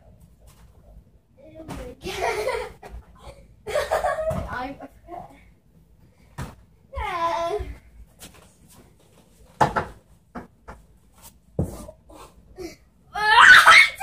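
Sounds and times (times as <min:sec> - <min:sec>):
boy crying out: 0:13.1 - 0:14.0.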